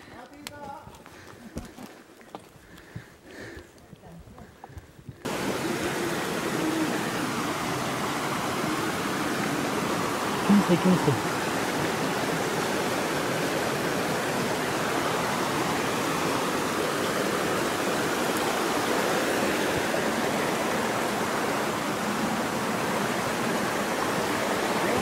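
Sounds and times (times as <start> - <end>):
stream rushing over rocks: 5.2 - 25.0.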